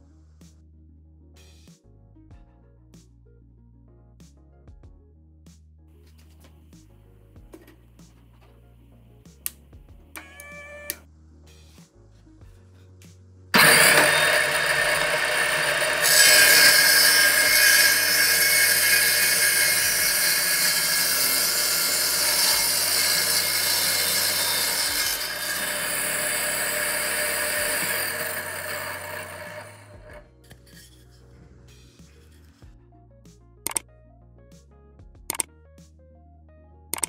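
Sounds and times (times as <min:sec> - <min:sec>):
circular saw cutting wood: 0:13.6 - 0:31.2.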